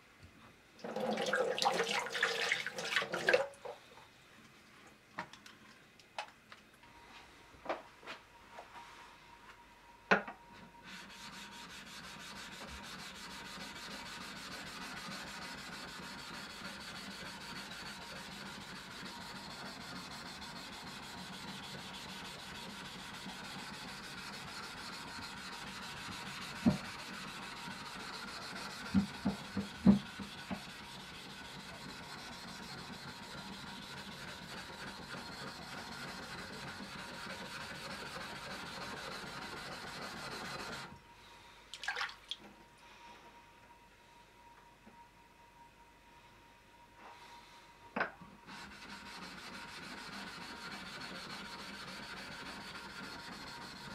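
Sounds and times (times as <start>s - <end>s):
plane blade scraping on waterstone: 10.9s - 40.9s, 48.5s - 53.9s.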